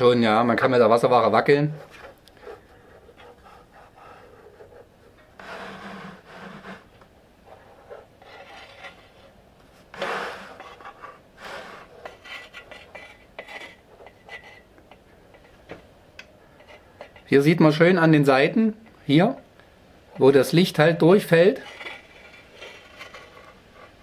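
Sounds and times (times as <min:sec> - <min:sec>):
metal rubbing and knocking on wood: 0:01.8 - 0:15.9, 0:21.6 - 0:24.0.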